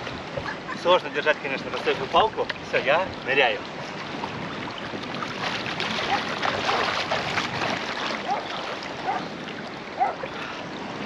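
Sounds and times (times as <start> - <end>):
water splashing and bubbling: 0.0 - 11.0
bubbling gurgles: 3.0 - 10.9.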